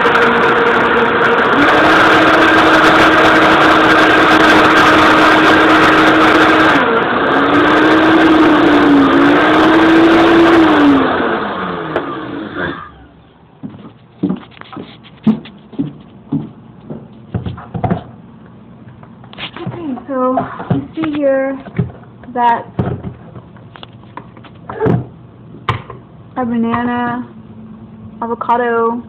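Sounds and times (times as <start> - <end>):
blender motor running: 0.0 - 13.1.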